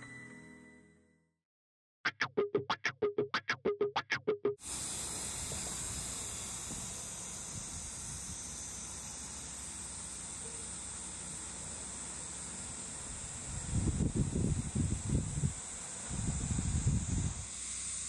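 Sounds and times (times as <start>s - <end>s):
insects droning: 4.6s - 18.0s.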